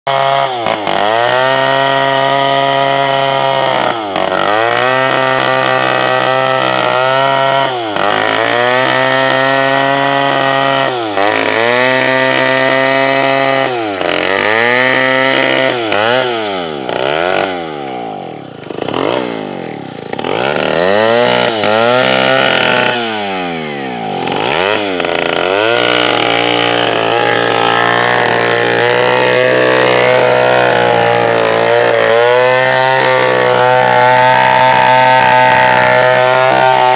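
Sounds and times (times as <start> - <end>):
chainsaw cutting log: 0.1 - 36.9.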